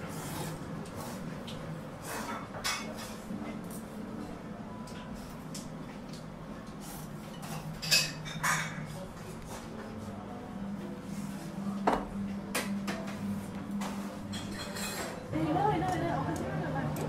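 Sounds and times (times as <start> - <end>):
dishes and utensils clinking: 2.1 - 3.8, 7.2 - 9.7, 13.8 - 15.3.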